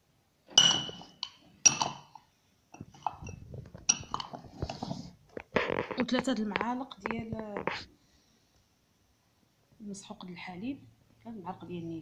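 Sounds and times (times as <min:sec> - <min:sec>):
spoon clinking against dish: 0:00.6 - 0:02.1.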